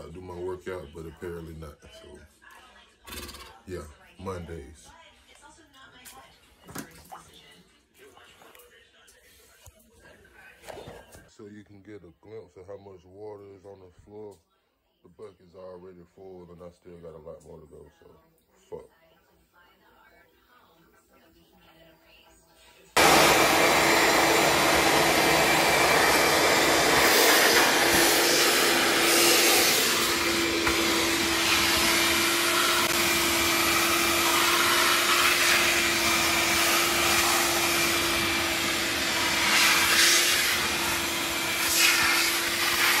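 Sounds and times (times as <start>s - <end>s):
shop vacuum motor whine: 23.0s - 43.0s
vacuum hose sucking water: 23.0s - 43.0s.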